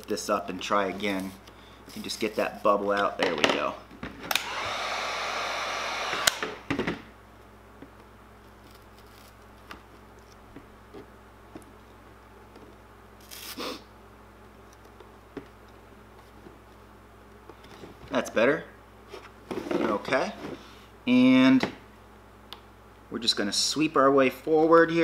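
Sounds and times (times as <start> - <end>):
heat gun blowing: 4.2 - 6.7
heat gun switch click: 4.3 - 4.6, 6.1 - 6.6.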